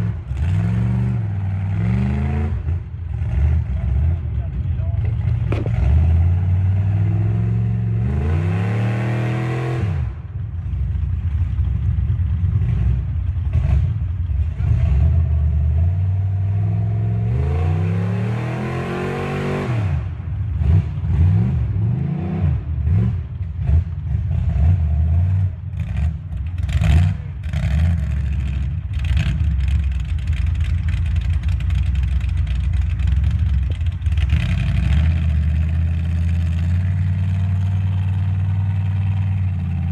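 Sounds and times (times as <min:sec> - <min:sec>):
engine revving: 0:00.0 - 0:10.4, 0:12.2 - 0:39.9
knocks and clatter: 0:04.9 - 0:06.2, 0:26.0 - 0:39.4.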